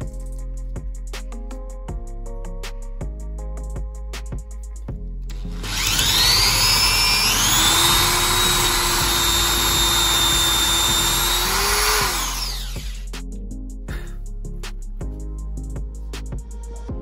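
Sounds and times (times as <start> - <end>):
electric drill boring into wood: 5.3 - 13.0.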